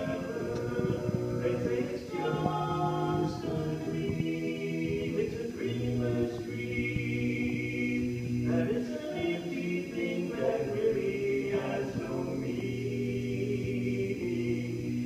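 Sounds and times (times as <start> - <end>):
men singing in close harmony: 0.0 - 15.0.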